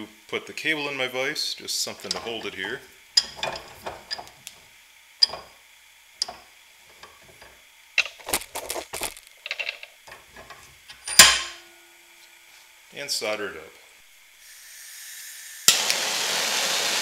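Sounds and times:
metal clicks and clanks of vise: 2.0s - 4.6s, 5.2s - 5.5s, 6.2s - 8.4s, 9.4s - 11.6s
loud ringing metal clank: 11.0s - 11.9s.

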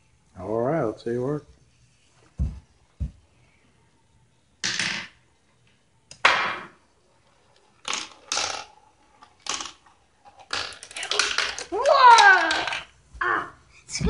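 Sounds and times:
marble clattering down plastic run: 7.4s - 12.9s.

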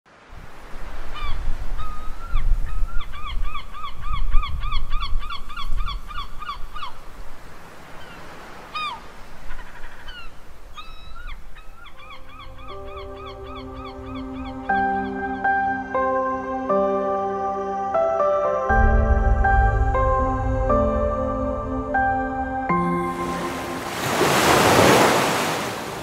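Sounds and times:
birds calling: 7.9s - 16.6s
soft music: 12.0s - 24.4s
low rumble of sea: 18.7s - 26.0s.

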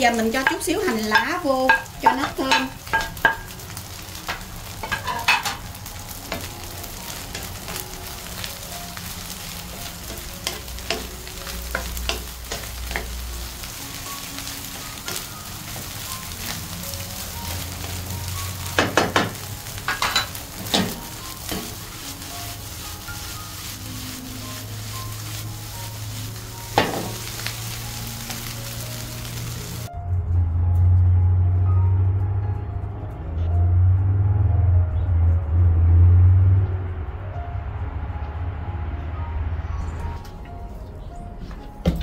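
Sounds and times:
rice sizzling in a hot pan: 0.0s - 29.9s.

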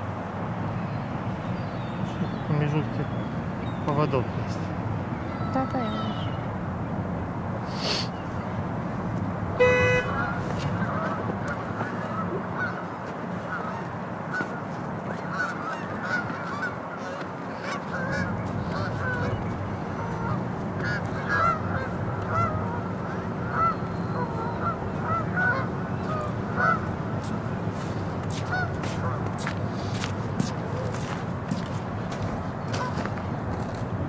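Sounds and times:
flock of birds calling: 9.6s - 33.1s.

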